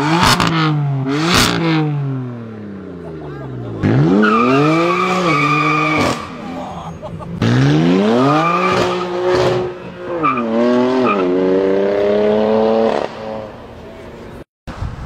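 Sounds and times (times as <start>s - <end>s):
car engine accelerating hard: 3.6s - 13.5s.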